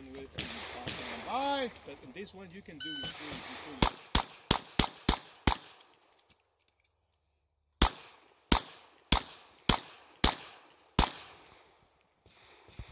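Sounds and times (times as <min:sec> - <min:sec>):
pistol shots with echo: 0:00.3 - 0:01.6, 0:03.0 - 0:05.8, 0:07.8 - 0:11.7.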